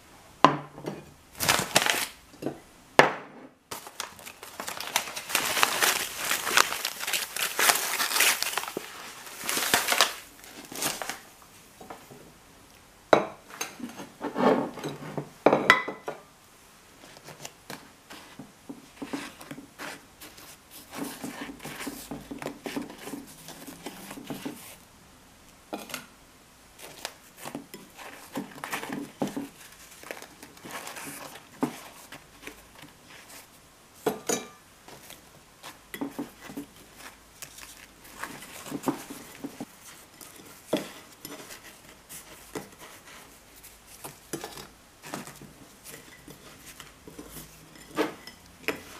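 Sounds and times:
sugar rustling: 1.3s - 2.2s, 3.7s - 11.4s, 17.0s - 24.9s, 26.7s - 34.2s, 34.8s - 48.9s
paper bag crinkling: 1.4s - 2.2s, 3.7s - 11.3s.

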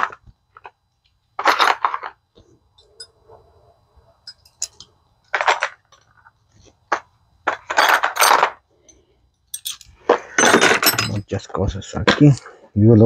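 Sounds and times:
metal hand tools clinking: 4.2s - 4.9s, 7.7s - 11.3s.

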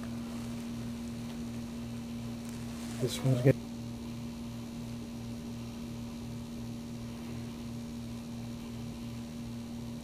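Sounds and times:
steady electrical hum: 0.0s - 10.0s.

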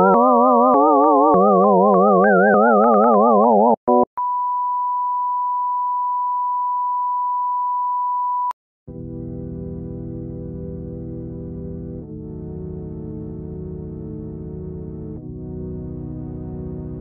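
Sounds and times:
low synthesizer chord: 8.9s - 17.0s.

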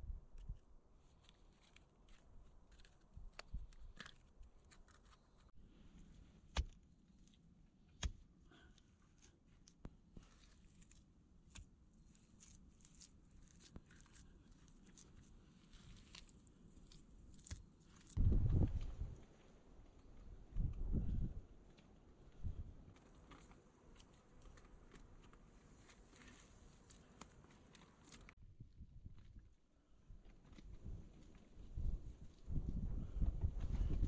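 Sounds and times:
mud rustling: 10.2s - 20.4s, 22.9s - 28.4s.

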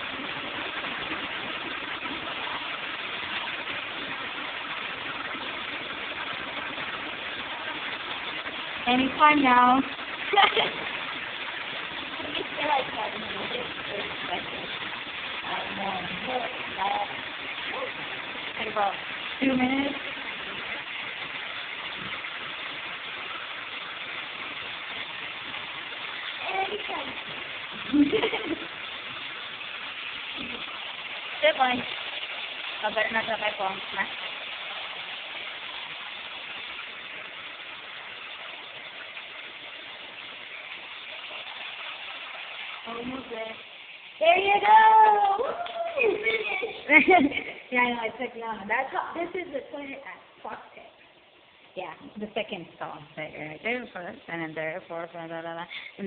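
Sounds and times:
toilet flushing: 0.0s - 48.1s.

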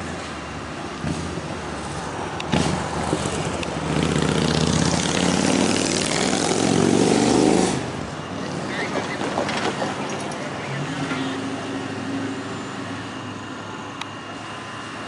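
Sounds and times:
diesel locomotive engine running: 6.4s - 15.0s.

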